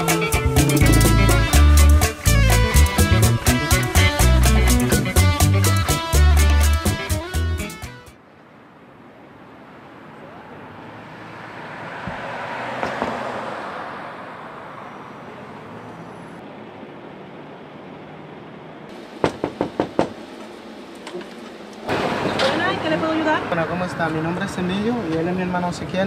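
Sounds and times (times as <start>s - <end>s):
street traffic: 0.0s - 26.0s
car passing: 8.2s - 26.0s.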